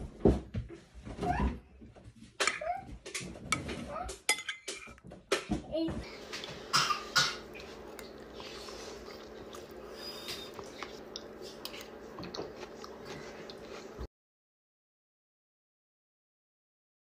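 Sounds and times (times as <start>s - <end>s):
steady low hum: 5.9s - 14.1s
eating sounds: 6.0s - 14.1s
spoon scraping bowl: 6.2s - 14.0s.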